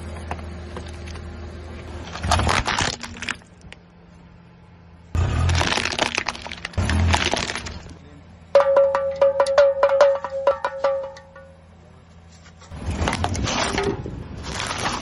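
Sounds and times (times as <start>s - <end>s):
plastic toy crushed under tyre: 2.1s - 3.5s, 5.2s - 8.0s, 12.8s - 15.0s.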